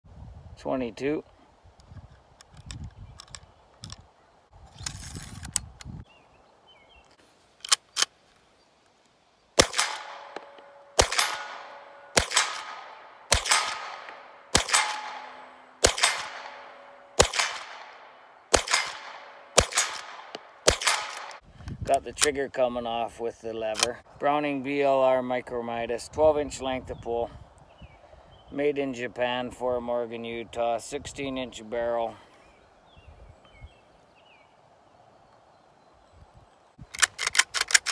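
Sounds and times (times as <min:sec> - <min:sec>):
rifle action clicks: 0:02.4 - 0:04.1, 0:07.6 - 0:08.1, 0:09.6 - 0:22.4, 0:23.7 - 0:24.0, 0:36.8 - 0:37.9
rifle shots with echo: 0:09.6 - 0:21.4.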